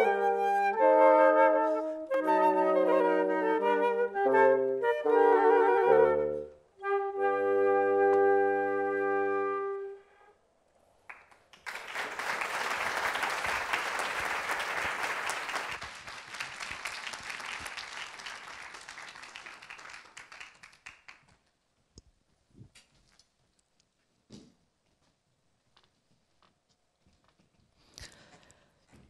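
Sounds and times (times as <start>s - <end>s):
flutes and bassoon chord: 0.0s - 10.0s
audience applauding: 11.1s - 21.4s.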